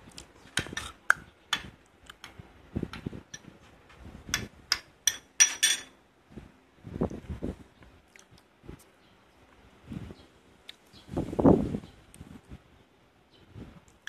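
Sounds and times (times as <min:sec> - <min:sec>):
metal spoon clinking on ceramic bowl: 0:04.4 - 0:06.0.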